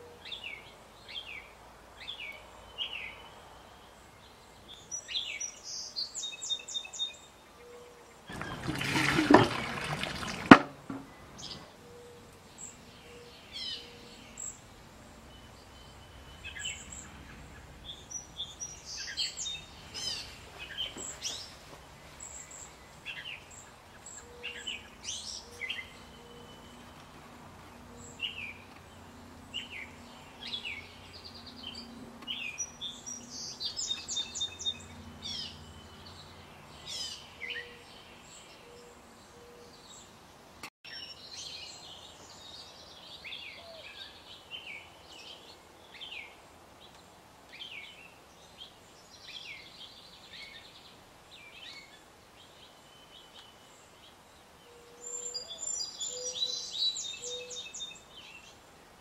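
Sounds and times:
birds chirping: 0:00.0 - 0:40.2
faint water trickle: 0:08.3 - 0:11.6
water splashing: 0:08.3 - 0:11.6
bamboo knocking against rock: 0:10.4 - 0:11.2.

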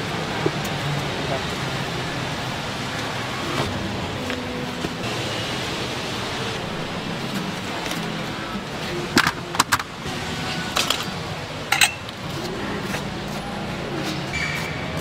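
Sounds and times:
busy market background noise: 0:00.0 - 0:15.0
metallic clinks and knocks: 0:11.7 - 0:12.1.

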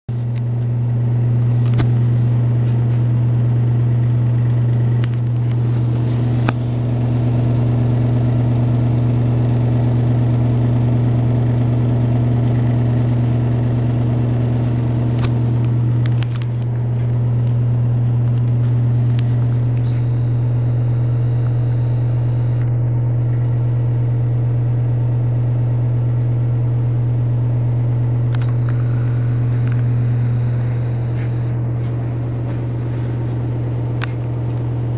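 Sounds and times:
exhaust fan humming: 0:00.1 - 0:34.9.

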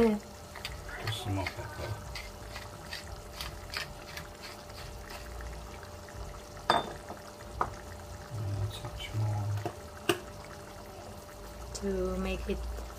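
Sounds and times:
sauce bubbling in a frying pan: 0:00.0 - 0:12.9.

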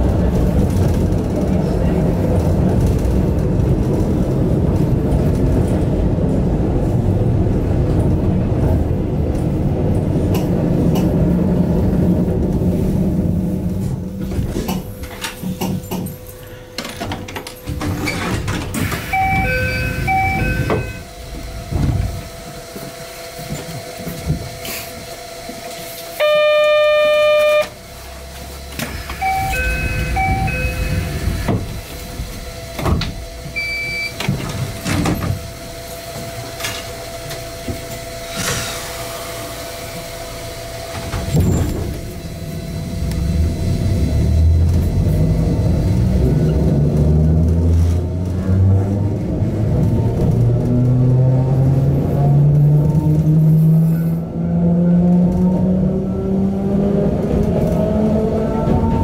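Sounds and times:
train motors and wheels rumbling: 0:00.0 - 0:59.0
electronic beeps: 0:19.1 - 0:21.0, 0:29.2 - 0:31.1
loud electronic tone: 0:19.1 - 0:21.1, 0:26.2 - 0:27.8, 0:29.2 - 0:31.3.

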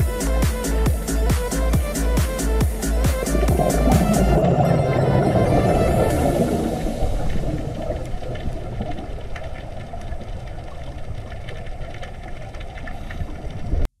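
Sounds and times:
low underwater rumble: 0:02.9 - 0:13.9
underwater clicks and crackles: 0:03.8 - 0:14.0.

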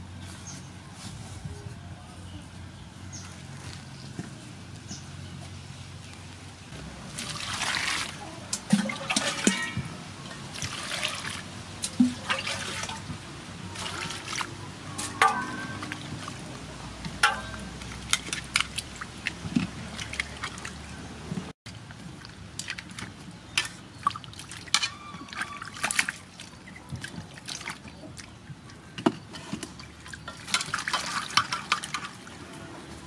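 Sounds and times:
water splashing in metal basin: 0:07.0 - 0:21.0, 0:21.8 - 0:28.3, 0:29.4 - 0:32.5.

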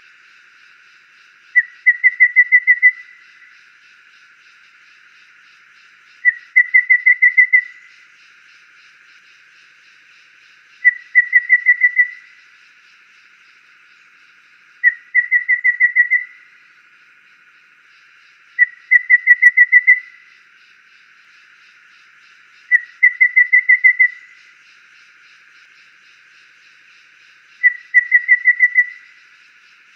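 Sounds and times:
bird whistling song: 0:01.5 - 0:03.5, 0:06.2 - 0:08.0, 0:10.8 - 0:12.4, 0:14.8 - 0:16.5, 0:18.6 - 0:20.3, 0:22.7 - 0:24.5, 0:27.6 - 0:29.2.

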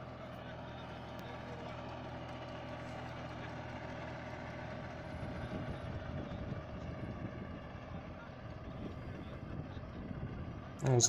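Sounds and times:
tractor engine humming: 0:00.0 - 0:11.0.

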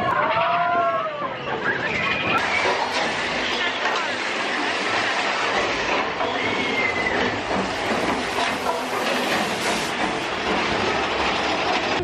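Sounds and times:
roller coaster rattling on track: 0:00.0 - 0:12.0
high wheel squeal: 0:05.3 - 0:10.0.

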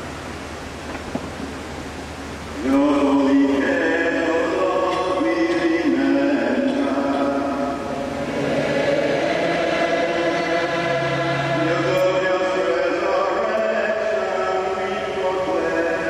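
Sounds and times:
lower voice singing: 0:02.6 - 0:16.0
church choir singing: 0:02.7 - 0:16.0.

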